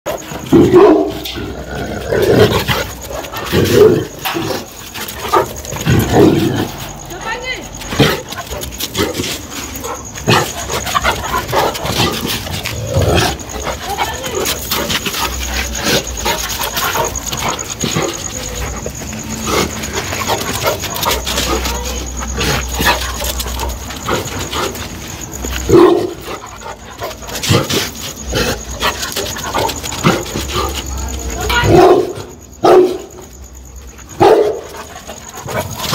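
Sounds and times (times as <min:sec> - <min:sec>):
dog barking: 0:00.6 - 0:01.3, 0:25.7 - 0:26.2, 0:31.5 - 0:33.1, 0:34.2 - 0:34.7.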